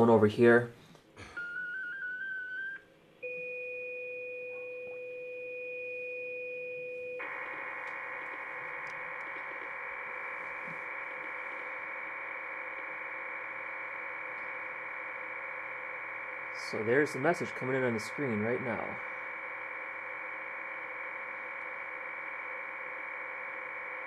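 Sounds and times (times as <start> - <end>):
two steady tones: 1.2 - 24.0
warbling multi-tone data signal: 1.3 - 2.8, 7.2 - 24.0
stepping data tones: 7.2 - 24.0.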